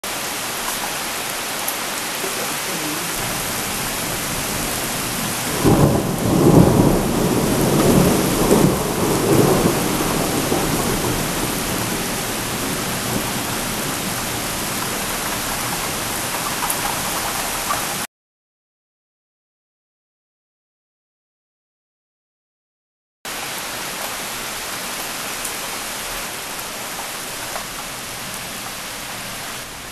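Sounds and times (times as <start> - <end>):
rain hiss: 0.0 - 18.0, 23.3 - 29.9
rolling thunder: 3.2 - 16.4.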